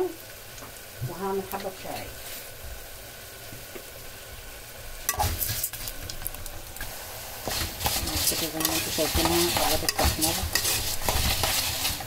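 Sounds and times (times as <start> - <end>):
vermicelli sizzling in oil: 0.0 - 12.0
metal spoon scraping pot: 7.5 - 12.0.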